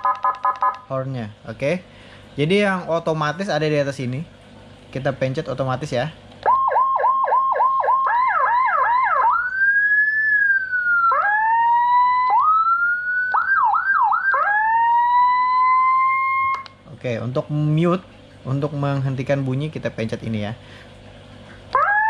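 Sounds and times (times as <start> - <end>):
electronic siren cycling tones: 0.0 - 0.9, 6.4 - 16.8, 21.7 - 22.0.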